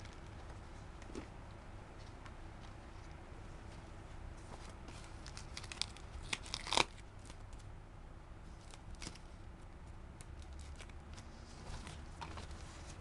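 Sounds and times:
plastic bag crinkling: 0:05.2 - 0:07.4.

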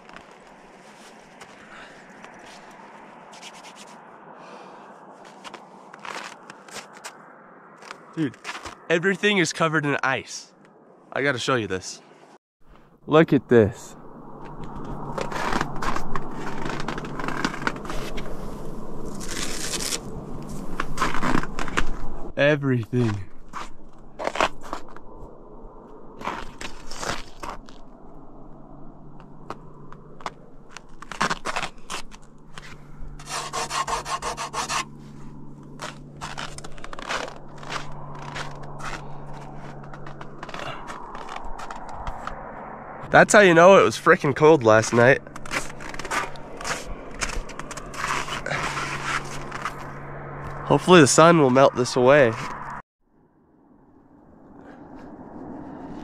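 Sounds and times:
ice and frost crunching: 0:00.0 - 0:08.8, 0:15.1 - 0:22.1, 0:23.0 - 0:25.0, 0:26.2 - 0:27.9, 0:29.5 - 0:42.3, 0:44.1 - 0:49.9.

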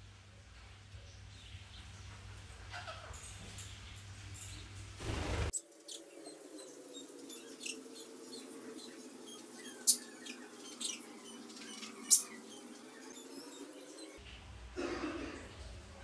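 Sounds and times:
parakeet chirping: 0:05.6 - 0:14.2
parakeet shrill notes: 0:05.9 - 0:14.2.

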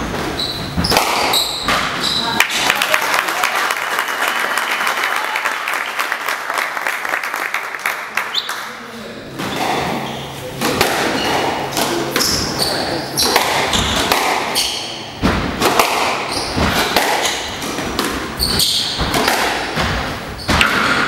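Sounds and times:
shoes squeaking on wooden floor: 0:00.0 - 0:02.4, 0:12.2 - 0:15.0, 0:16.2 - 0:17.6, 0:18.3 - 0:19.2
squash ball hitting rackets and walls: 0:00.0 - 0:02.7, 0:09.2 - 0:21.0.

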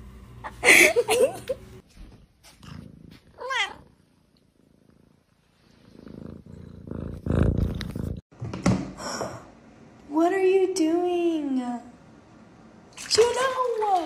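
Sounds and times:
kitten purring: 0:02.5 - 0:08.2.

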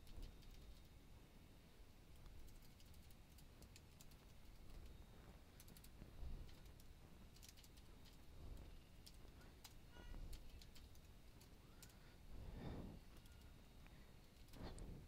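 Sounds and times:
computer keyboard clicking: 0:00.0 - 0:00.9, 0:02.2 - 0:12.0
low room hum: 0:00.0 - 0:15.0.

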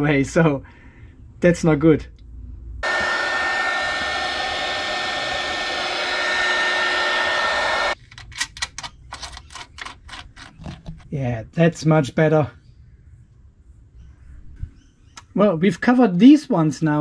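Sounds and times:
heat gun blowing with high whine: 0:02.8 - 0:08.0.

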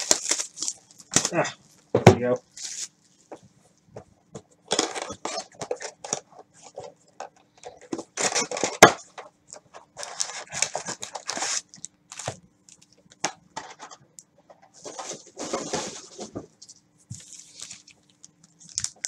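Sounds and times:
cardboard tearing: 0:00.0 - 0:01.5, 0:04.7 - 0:06.2, 0:08.2 - 0:09.0, 0:10.0 - 0:12.4
wrapper crinkling: 0:00.0 - 0:01.9, 0:02.5 - 0:03.3, 0:09.9 - 0:13.9, 0:14.8 - 0:19.0.

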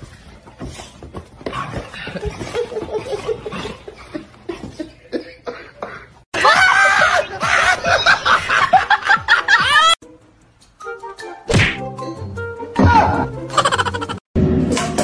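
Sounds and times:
people laughing: 0:02.0 - 0:10.0, 0:13.6 - 0:14.2.

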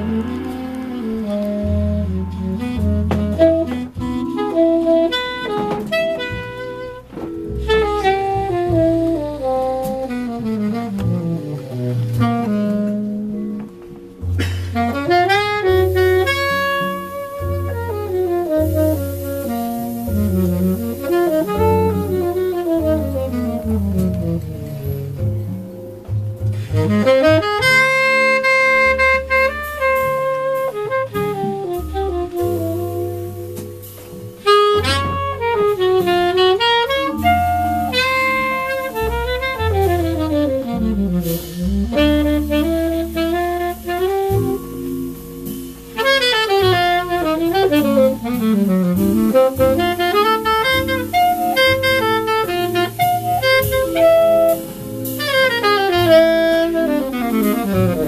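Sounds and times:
tenor saxophone melody: 0:00.0 - 0:58.0
walking double bass: 0:00.0 - 0:58.0.

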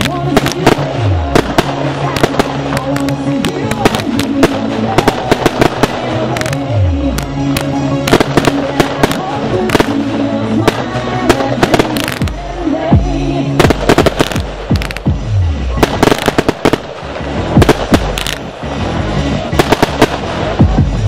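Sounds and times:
firework bangs and cracks: 0:00.0 - 0:12.4, 0:13.6 - 0:15.2, 0:15.8 - 0:18.6, 0:19.5 - 0:20.9
pop song with vocals: 0:00.0 - 0:16.5.

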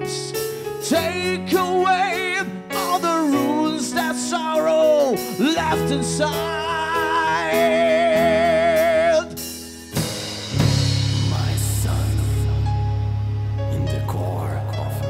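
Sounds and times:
drums: 0:00.0 - 0:14.3
guitar chords: 0:04.4 - 0:15.0
low held notes: 0:10.4 - 0:15.0.

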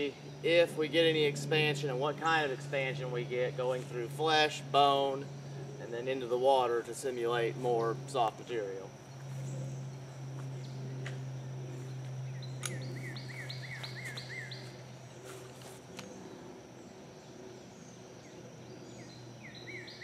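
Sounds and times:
insects buzzing: 0:00.0 - 0:20.0
low hum: 0:00.0 - 0:20.0
bird chirping: 0:09.1 - 0:20.0.

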